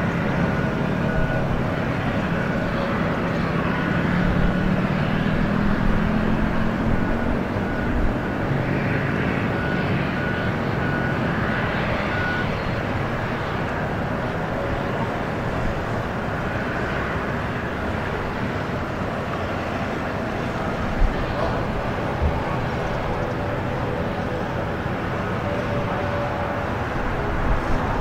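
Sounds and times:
distant jet engines rumbling: 0.0s - 28.0s.

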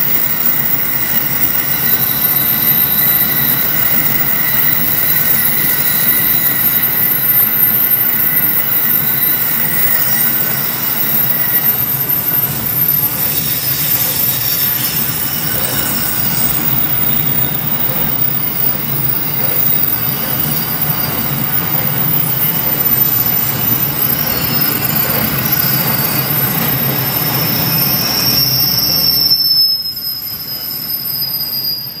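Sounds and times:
train wheels rumbling and clattering: 0.0s - 31.0s
wheel squeal on rail: 0.0s - 32.0s.

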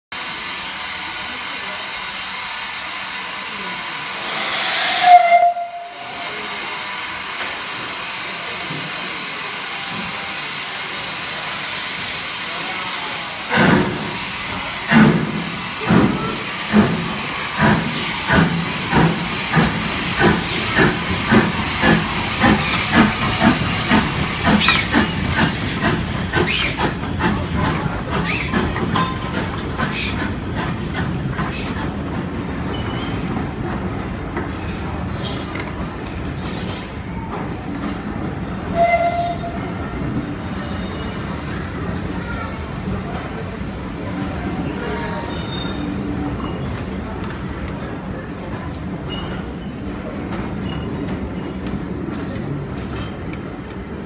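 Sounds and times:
steam hissing: 0.2s - 33.2s
steam locomotive exhaust chuffs: 9.6s - 34.1s.

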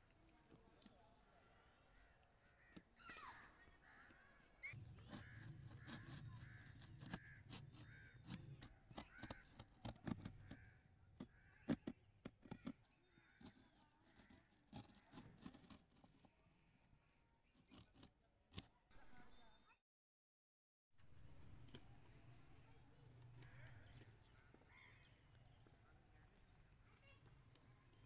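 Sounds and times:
crows cawing: 1.9s - 4.4s, 5.0s - 15.3s, 24.7s - 25.1s
knife cutting cardboard: 4.8s - 16.3s, 17.6s - 18.7s.

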